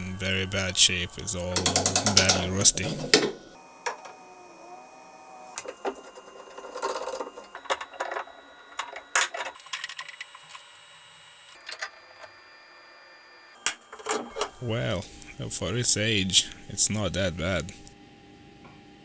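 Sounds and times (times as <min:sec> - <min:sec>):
metal parts clicking and clinking: 0:01.6 - 0:03.4, 0:05.6 - 0:10.6, 0:13.9 - 0:14.6.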